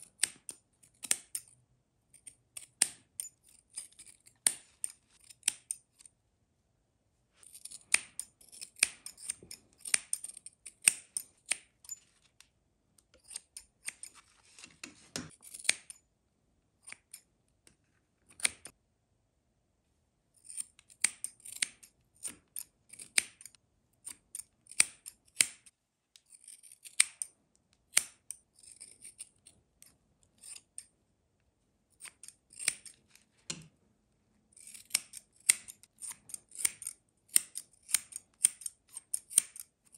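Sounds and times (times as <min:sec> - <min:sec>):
scissors snipping hair: 0:00.0 - 0:01.5, 0:02.2 - 0:05.8, 0:07.4 - 0:12.0, 0:26.5 - 0:27.3, 0:34.6 - 0:39.7.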